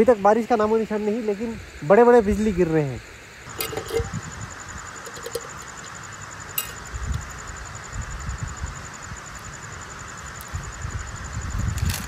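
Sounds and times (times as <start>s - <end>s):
wind buffeting microphone: 3.5s - 4.9s, 10.5s - 12.0s.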